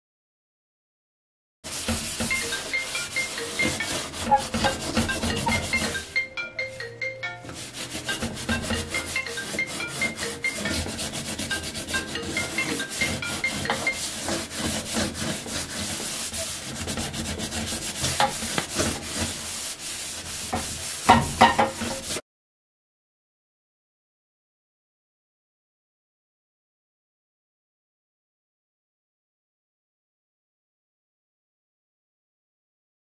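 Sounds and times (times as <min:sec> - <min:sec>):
sponge scrubbing stovetop: 0:01.7 - 0:22.2
light melodic background music: 0:02.2 - 0:14.8.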